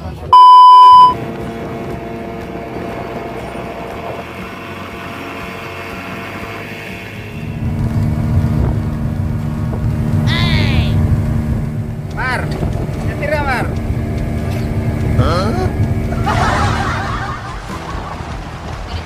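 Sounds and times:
speedboat engine running: 0.0s - 19.0s
electronic beep: 0.4s - 1.2s.

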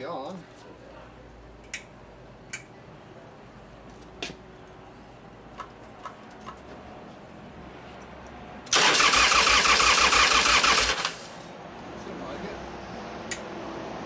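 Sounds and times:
starter motor cranking engine: 8.7s - 11.5s.

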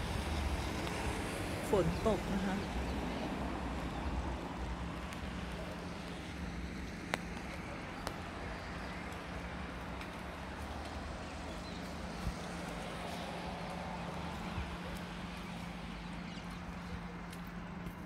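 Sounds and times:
faint sharp clicks: 7.0s - 8.3s.

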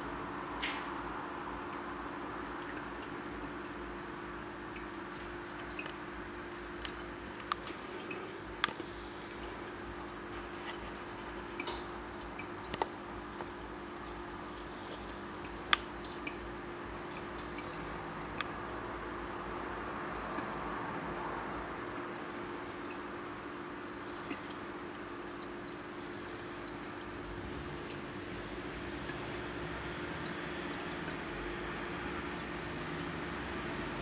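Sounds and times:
cricket chirping: 0.0s - 34.0s.

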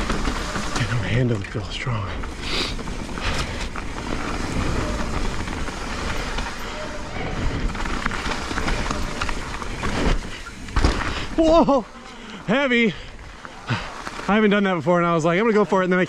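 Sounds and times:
bike rattling over ground: 0.0s - 16.0s
bike tyre noise on trail: 0.0s - 16.0s
bike landing heavy thumps: 8.0s - 11.4s.

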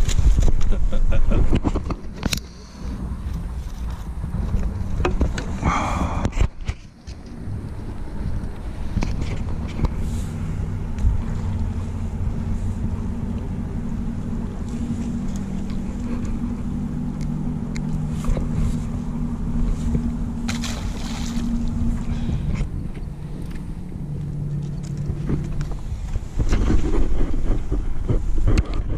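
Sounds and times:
engine droning: 0.0s - 28.9s
splash in water: 20.5s - 21.8s.

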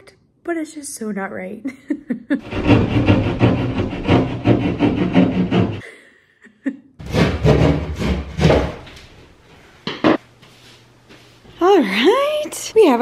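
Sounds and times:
knife sawing through drywall: 2.4s - 5.8s, 7.0s - 8.8s.

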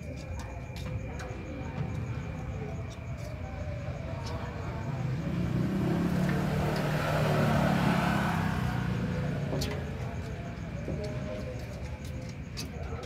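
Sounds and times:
vehicle engine passing by: 3.4s - 11.7s.

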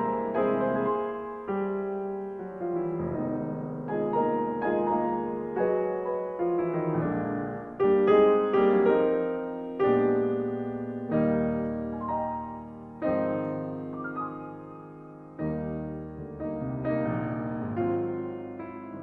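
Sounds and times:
slow gentle piano music: 0.0s - 19.0s.

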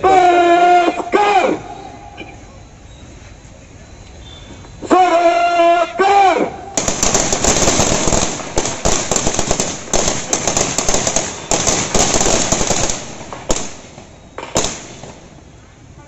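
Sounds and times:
rifles firing blank rounds: 6.8s - 15.4s.

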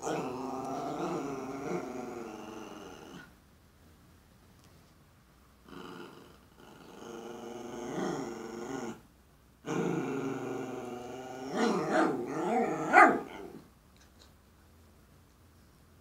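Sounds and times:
small dog growly whining: 0.0s - 3.3s, 5.7s - 9.0s, 9.6s - 13.7s.

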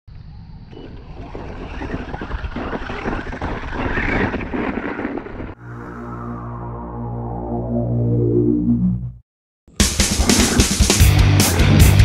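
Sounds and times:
rc vehicle motor on dirt: 0.7s - 5.5s
music: 8.9s - 12.0s.

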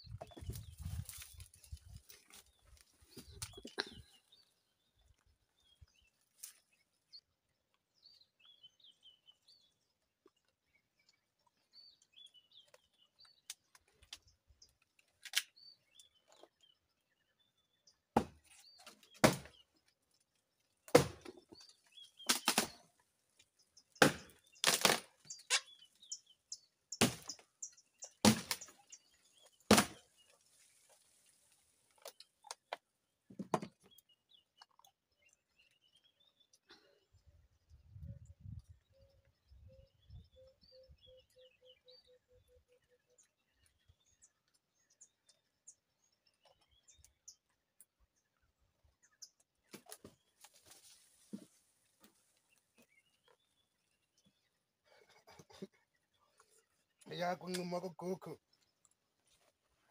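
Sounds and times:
dry brush crackling underfoot: 0.2s - 3.8s
faint bird chirps: 34.4s - 47.5s.

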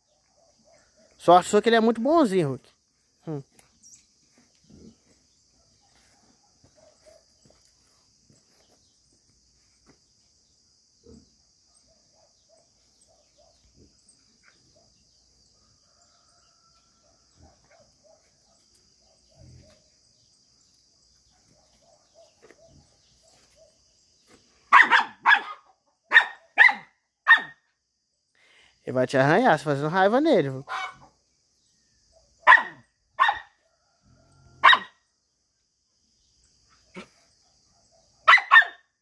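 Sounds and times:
faint insect drone: 0.0s - 39.0s
dog barking sharply: 24.7s - 27.6s, 30.7s - 31.1s, 32.4s - 33.5s, 34.6s - 35.0s, 38.2s - 38.8s.

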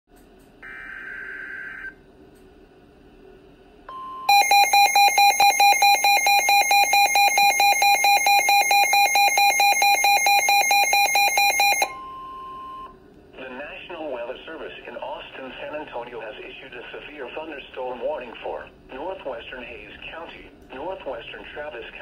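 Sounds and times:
rapid alarm beeping: 4.2s - 12.9s.

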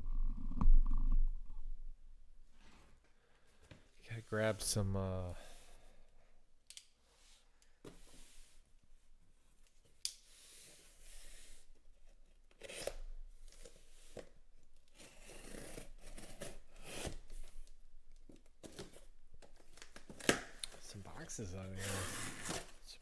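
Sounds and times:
blade slicing packing tape: 12.6s - 13.0s, 15.0s - 17.2s.

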